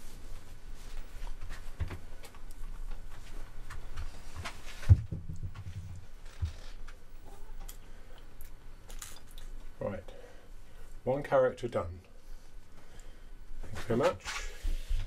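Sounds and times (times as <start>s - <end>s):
wig handling and clicks: 7.6s - 9.6s.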